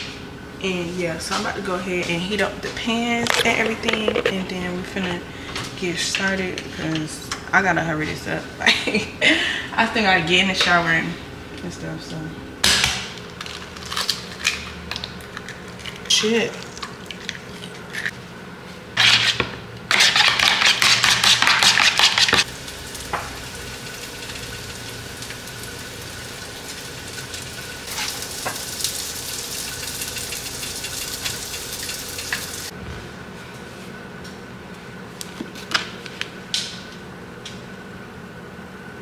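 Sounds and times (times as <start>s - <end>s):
food sizzling in frying pans: 22.4s - 32.7s.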